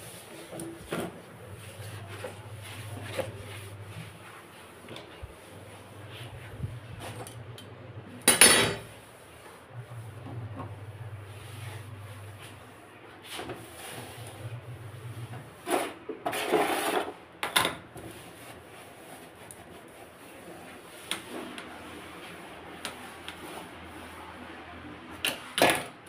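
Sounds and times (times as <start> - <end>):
cloth rubbing on metal stove: 0.0 - 17.2, 17.9 - 24.8
low steady hum: 0.6 - 15.6.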